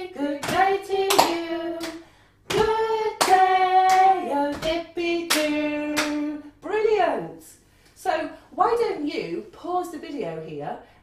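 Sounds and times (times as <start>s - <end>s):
woman and girl singing: 0.0s - 7.4s
hand clapping game: 0.4s - 6.3s.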